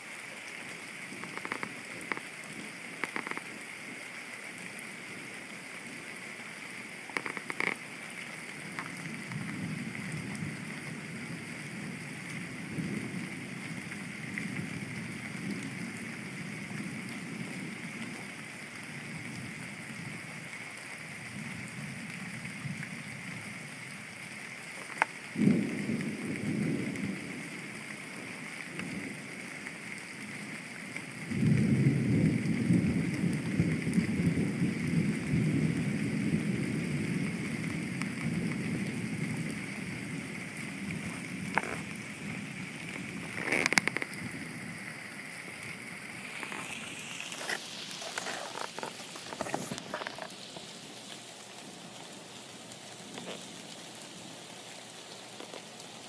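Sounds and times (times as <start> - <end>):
heavy rain: 0.0 - 56.0
low thunder rumble: 25.3 - 29.3, 31.2 - 50.2
thunder crack: 25.4 - 27.4.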